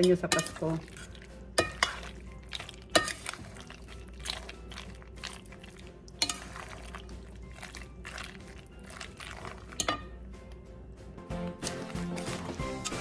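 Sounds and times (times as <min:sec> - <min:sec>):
metal clinking on ceramic bowl: 0:00.0 - 0:03.7, 0:09.7 - 0:10.2
utensils stirring macaroni salad: 0:00.0 - 0:10.2, 0:11.5 - 0:13.0.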